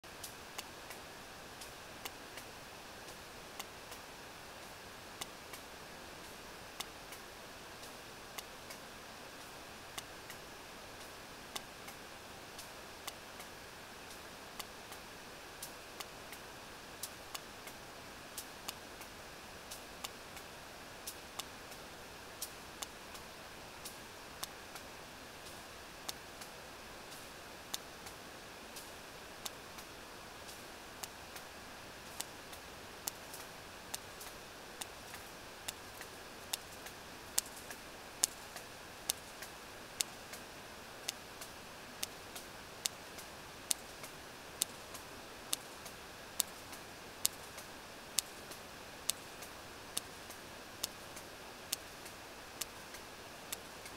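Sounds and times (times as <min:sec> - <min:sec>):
hydrophone background hiss: 0:00.0 - 0:53.9
whale echolocation clicks: 0:32.1 - 0:38.4, 0:39.1 - 0:40.4, 0:42.8 - 0:51.0.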